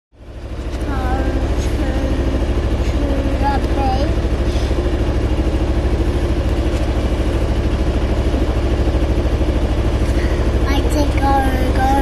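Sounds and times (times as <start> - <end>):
boat engine throbbing: 0.2 - 12.0.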